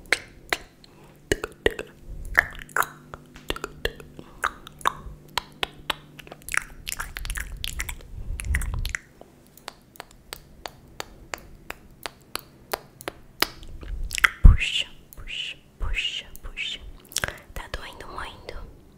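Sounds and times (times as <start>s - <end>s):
tongue clicks and lip smacks: 0.0s - 17.8s
low rumble: 6.2s - 9.1s, 13.6s - 14.9s.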